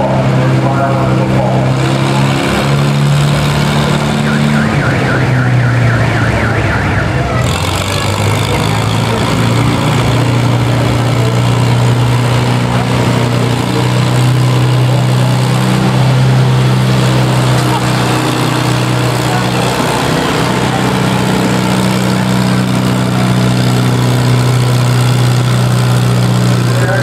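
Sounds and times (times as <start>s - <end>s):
tractor engine running: 0.0s - 27.0s
warbling siren-like tone: 3.9s - 7.4s.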